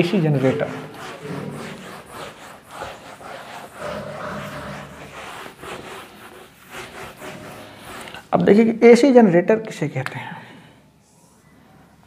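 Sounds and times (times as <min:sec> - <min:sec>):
duster wiping whiteboard: 0:00.0 - 0:08.6.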